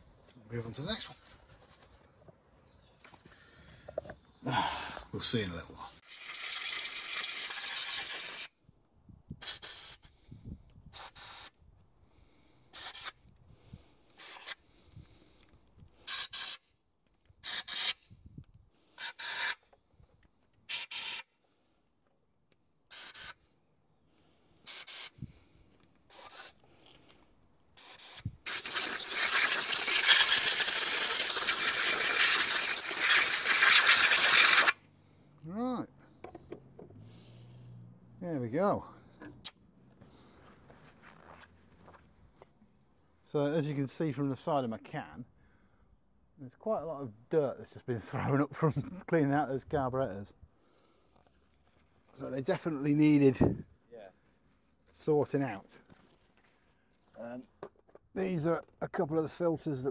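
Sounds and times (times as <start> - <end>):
compressed air blow gun hissing: 9.4 - 10.2, 10.9 - 11.6, 12.7 - 13.2, 14.2 - 14.6, 16.0 - 16.6, 17.4 - 18.0, 19.0 - 19.6, 22.9 - 23.4, 24.6 - 25.3, 26.1 - 26.6, 27.8 - 34.8.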